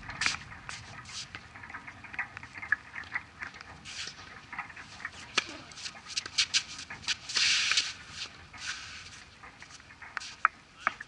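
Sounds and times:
shoes scuffing on court: 5.2 - 10.5.

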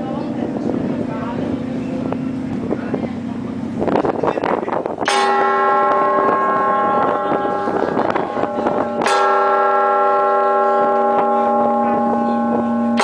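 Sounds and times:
heavy bell strokes: 0.0 - 13.0.

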